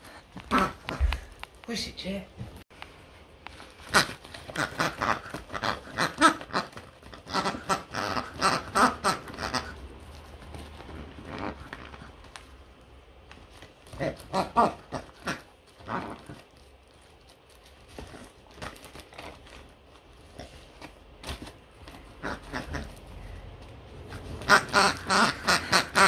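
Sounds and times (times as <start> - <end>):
paper crinkling and ripping: 15.3 - 23.3.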